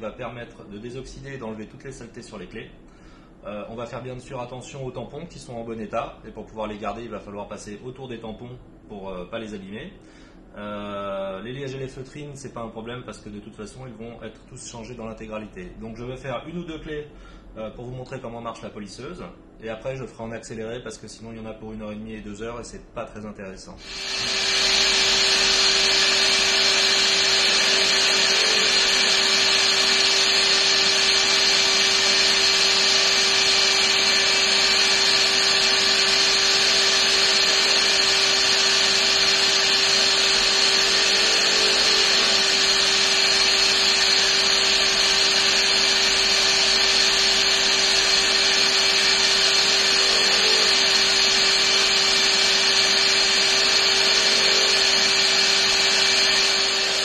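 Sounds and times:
polishing machine motor hum and whine: 23.8s - 57.0s.

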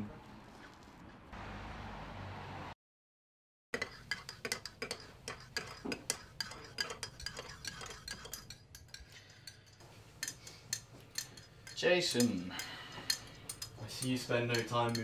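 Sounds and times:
cutlery and crockery clinking: 3.8s - 15.0s.

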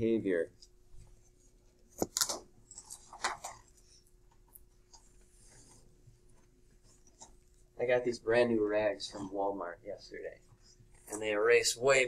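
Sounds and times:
cloth scrapes and rustles: 5.1s - 7.4s.

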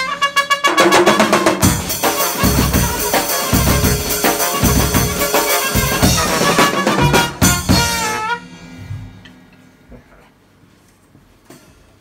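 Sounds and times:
trumpet and trombone playing: 0.0s - 8.8s
drum kit hits: 0.8s - 9.6s.

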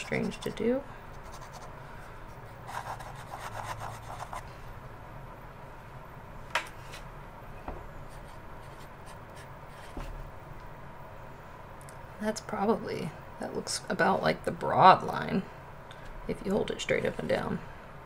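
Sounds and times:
fountain pen scratching on paper: 1.2s - 1.7s, 2.7s - 4.4s.

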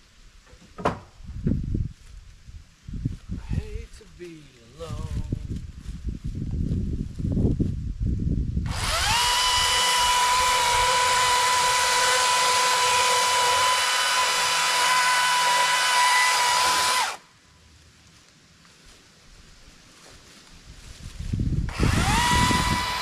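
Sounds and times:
leaves rustling: 0.0s - 14.6s, 16.1s - 23.0s
power tool motor whining: 8.6s - 17.2s, 21.7s - 23.0s.

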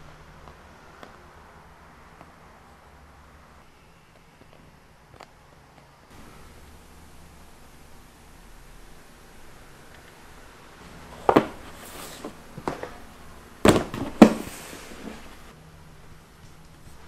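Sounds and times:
plastic trays clattering on steel: 10.8s - 15.5s.

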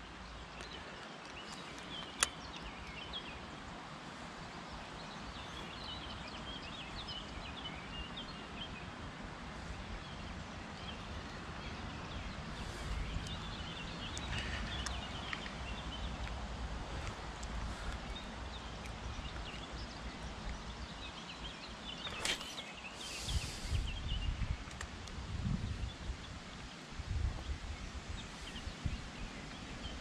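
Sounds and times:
small birds chirping: 0.0s - 30.0s
steady outdoor noise: 0.0s - 30.0s
sharp click: 1.2s - 3.0s.

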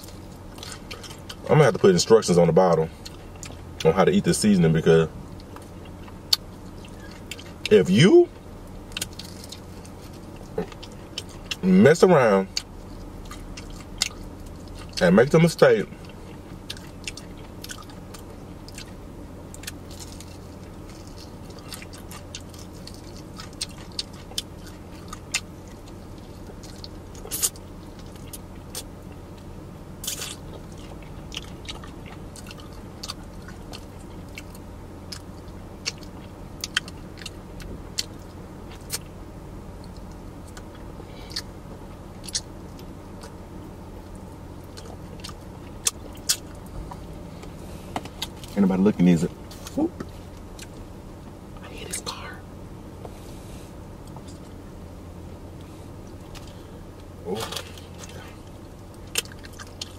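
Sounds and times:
crunchy chewing of fried chicken: 0.0s - 52.4s, 53.0s - 59.9s
steady low hum: 0.0s - 59.9s.

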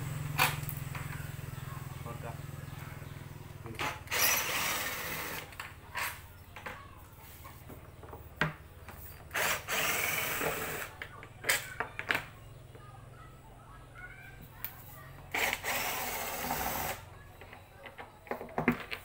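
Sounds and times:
cordless drill bursts: 3.8s - 6.1s, 9.3s - 11.0s, 15.3s - 17.1s.

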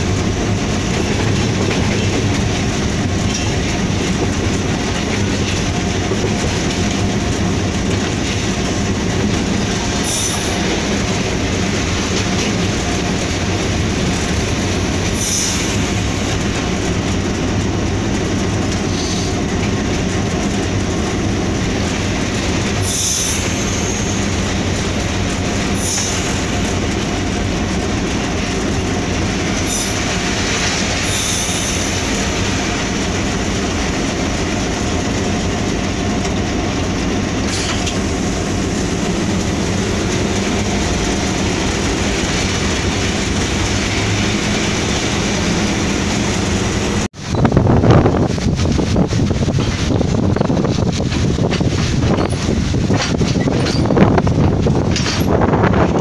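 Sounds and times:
diesel locomotive engine hum: 0.0s - 56.0s
train rolling on track: 0.0s - 56.0s.

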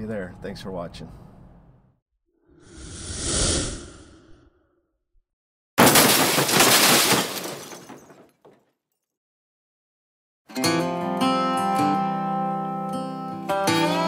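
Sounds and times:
rushing noise: 2.6s - 4.4s.

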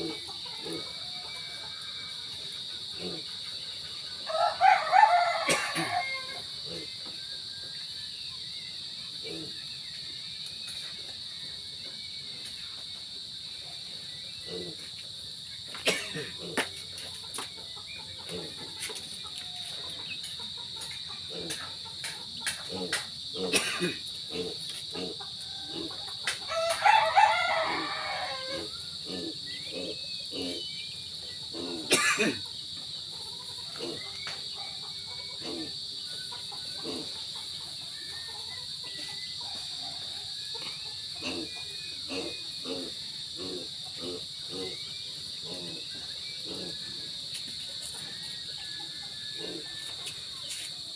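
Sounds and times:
chickens clucking: 0.0s - 4.1s, 15.6s - 26.8s, 31.2s - 42.8s
high insect drone: 0.0s - 50.9s
rooster crowing: 0.6s - 2.3s, 4.2s - 6.6s, 19.3s - 19.9s, 25.4s - 28.9s, 47.8s - 50.7s.

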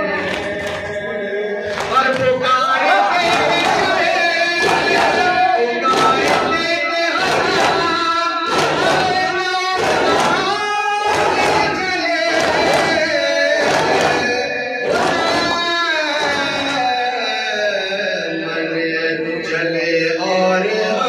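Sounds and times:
men chanting a lament: 0.0s - 21.0s
hands striking in unison: 3.2s - 15.6s.

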